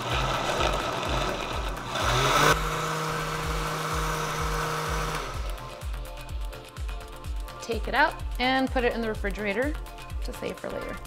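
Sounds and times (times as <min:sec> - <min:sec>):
blender motor whining: 0:00.0 - 0:05.8.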